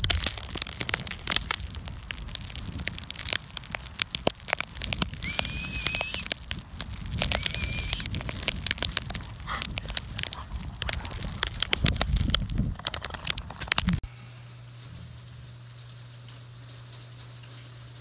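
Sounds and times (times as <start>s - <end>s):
high whistle-like tone: 5.2s - 6.3s, 7.2s - 8.0s.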